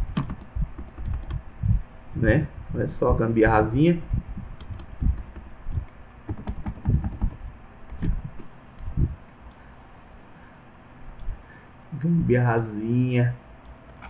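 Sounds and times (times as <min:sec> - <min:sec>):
computer keyboard keystrokes: 0:00.1 - 0:01.4, 0:04.0 - 0:08.2.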